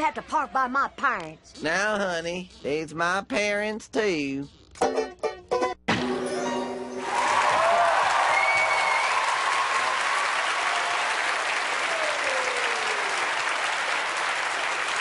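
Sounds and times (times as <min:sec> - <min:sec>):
large audience applauding: 0:07.0 - 0:15.0.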